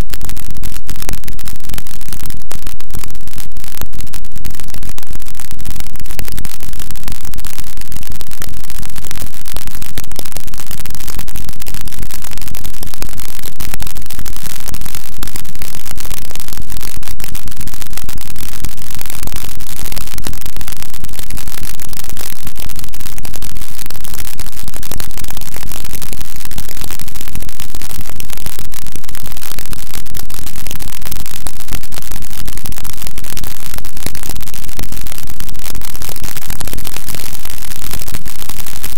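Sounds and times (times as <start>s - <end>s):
distorted static noise music: 0.0s - 38.9s.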